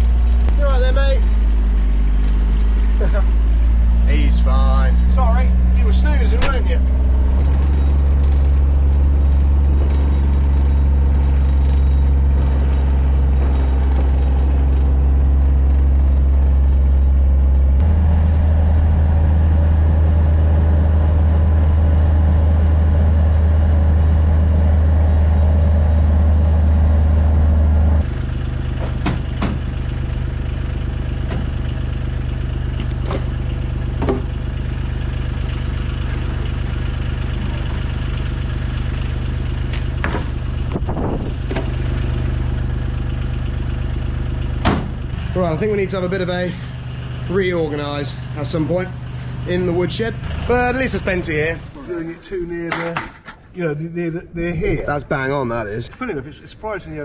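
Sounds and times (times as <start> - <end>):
diesel engine running: 0.0 - 57.0
sharp knocks and clatters: 7.4 - 17.9, 28.0 - 30.0, 31.1 - 34.4, 39.6 - 42.2.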